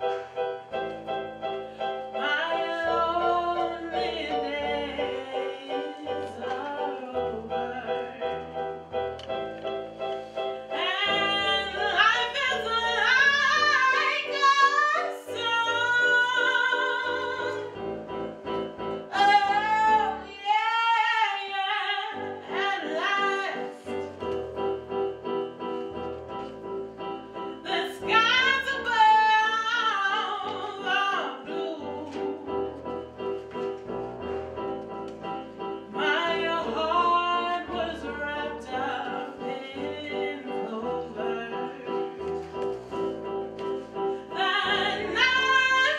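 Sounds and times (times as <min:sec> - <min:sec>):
woman singing with vibrato: 0:02.1 - 0:08.5, 0:10.7 - 0:17.8, 0:19.1 - 0:24.0, 0:27.6 - 0:32.7, 0:35.9 - 0:42.2, 0:44.2 - 0:45.9.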